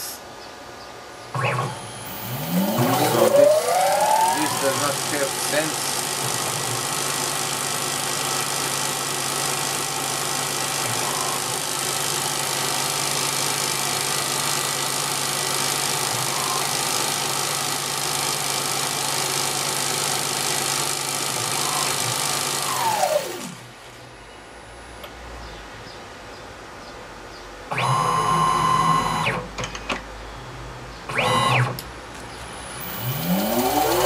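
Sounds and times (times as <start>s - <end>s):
lathe spindle motor whining: 1.5s - 23.6s, 32.5s - 34.0s.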